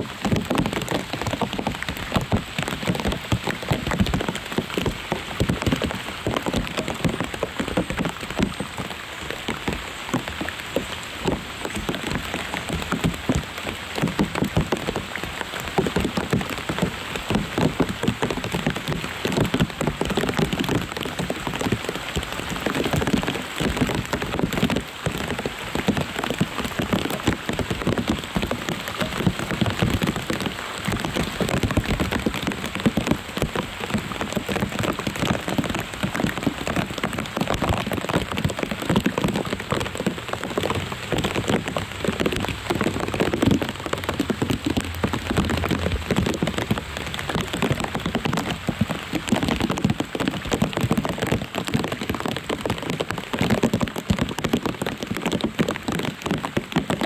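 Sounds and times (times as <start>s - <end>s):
rain pattering on leaves: 0.0s - 57.0s.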